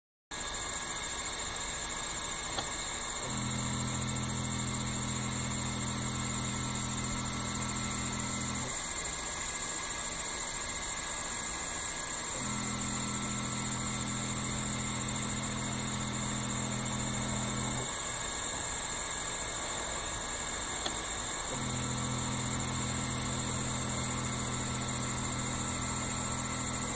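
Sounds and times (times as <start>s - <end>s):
laser engraver hiss and whine: 0.3s - 26.9s
low motor hum: 2.4s - 8.8s, 12.3s - 18.0s, 20.6s - 26.9s.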